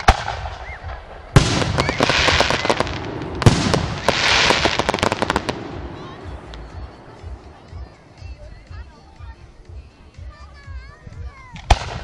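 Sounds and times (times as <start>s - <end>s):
fireworks bursting: 0.0s - 8.4s, 11.6s - 12.0s
fireworks crackling: 0.0s - 12.0s.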